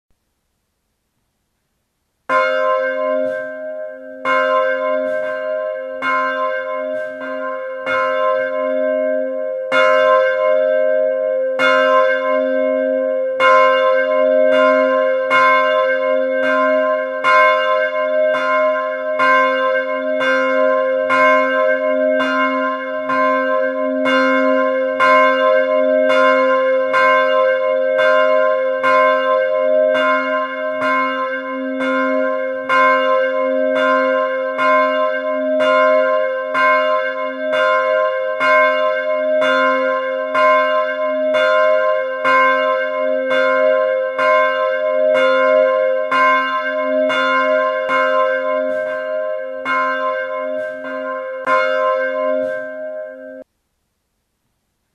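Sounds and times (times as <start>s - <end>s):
church bell ringing: 2.3s - 53.5s.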